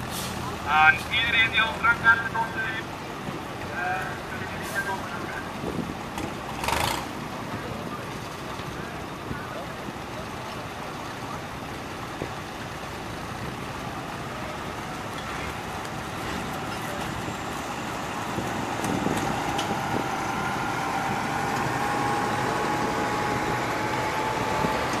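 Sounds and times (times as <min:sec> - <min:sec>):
tractor diesel engines running: 0:00.0 - 0:25.0.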